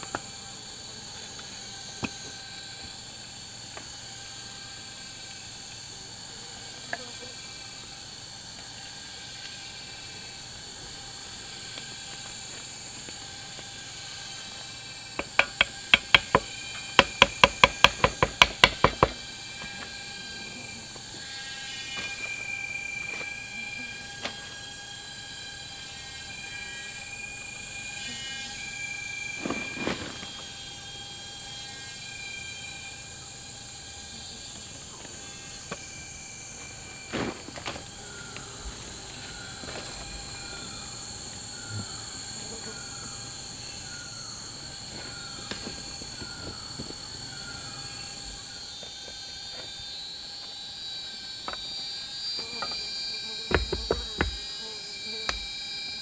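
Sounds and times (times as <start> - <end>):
faint steady tones: 0.0 - 56.0
high-pitched drone and hiss: 0.0 - 56.0
sharp knocks: 15.2 - 19.2, 53.5 - 54.5.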